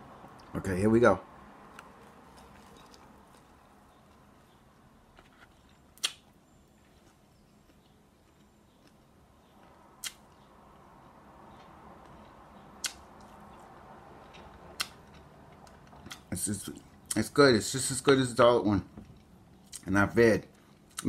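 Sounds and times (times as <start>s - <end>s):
person chewing food: 1.7s - 17.2s.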